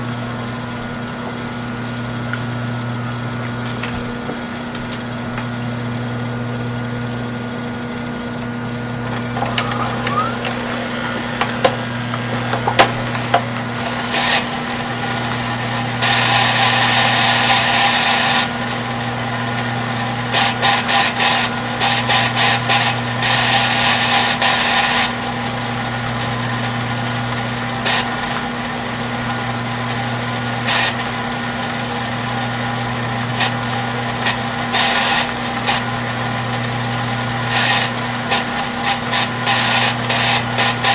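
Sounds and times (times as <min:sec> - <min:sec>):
motor hum: 0:00.0 - 0:40.9
tape winding at high speed: 0:09.2 - 0:11.5.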